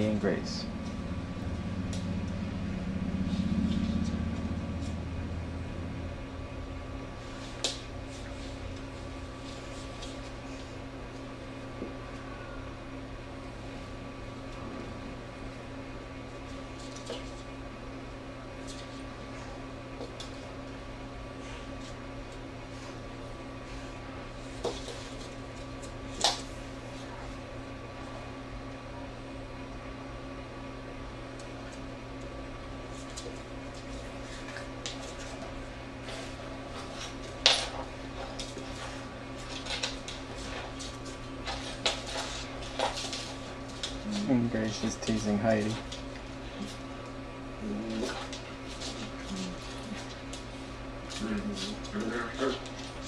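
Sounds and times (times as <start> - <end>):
electrical hum: 0.0 - 53.0
dogs clicking on hardwood floor: 33.0 - 35.6, 36.7 - 46.8, 47.9 - 53.0.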